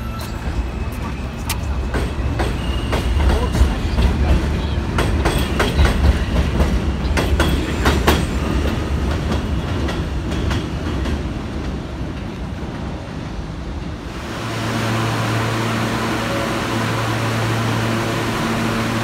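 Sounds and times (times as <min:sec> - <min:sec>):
train rumble: 0:00.0 - 0:19.0
train wheels clicking over rail joints: 0:00.1 - 0:12.9.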